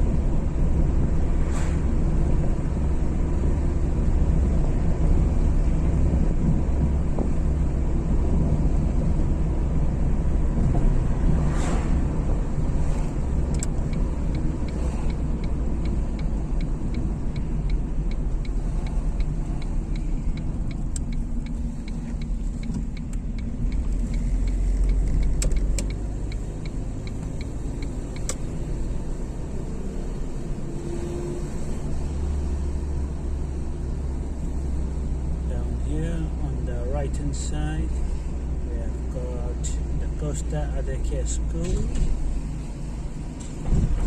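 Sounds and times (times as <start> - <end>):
car engine and road rumble: 0.0 - 44.0
light regular ticking: 12.6 - 29.2.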